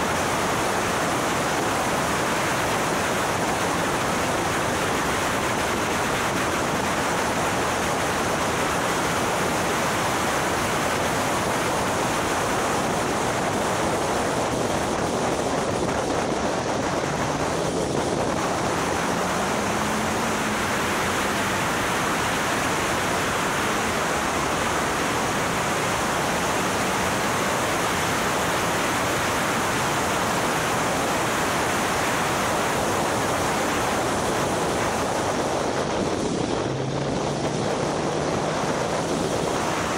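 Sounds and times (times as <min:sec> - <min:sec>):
wind noise on microphone: 0:00.0 - 0:39.9
faint car engine: 0:16.6 - 0:30.4.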